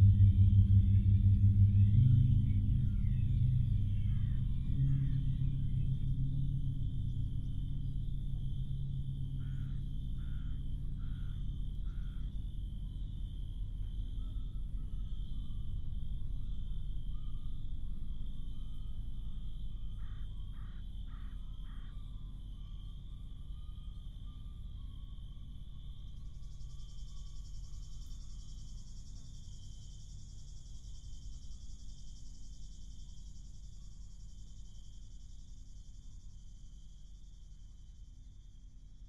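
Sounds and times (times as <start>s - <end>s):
low outdoor rumble: 0.0s - 39.0s
high-pitched cicada chorus: 1.7s - 39.0s
cicadas buzzing: 6.9s - 15.5s, 18.3s - 39.0s.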